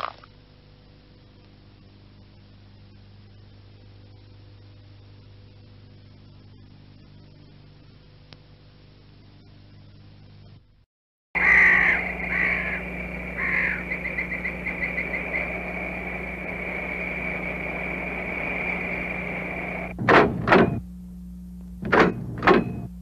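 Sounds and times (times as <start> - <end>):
animal chattering: 11.4 - 16.3
harsh descending animal calls: 11.4 - 19.9
high-pitched drone: 11.4 - 20.0.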